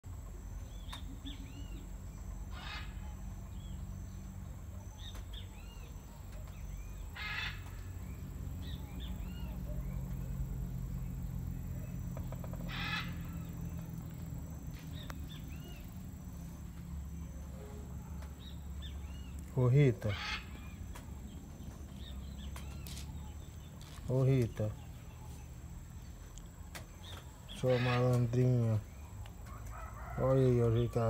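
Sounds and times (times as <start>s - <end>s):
small birds chirping: 0.0s - 31.0s
harsh rasping call: 12.6s - 13.5s.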